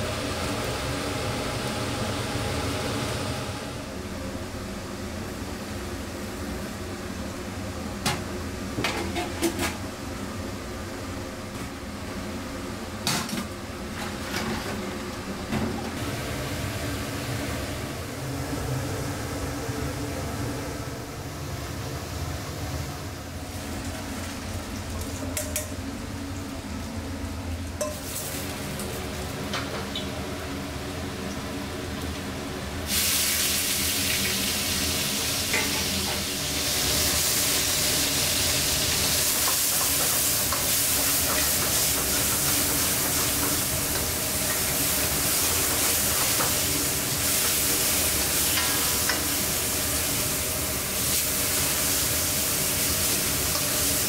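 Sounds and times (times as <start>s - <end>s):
low kitchen hum: 0.0s - 54.0s
meat sizzling in hot oil: 32.9s - 54.0s.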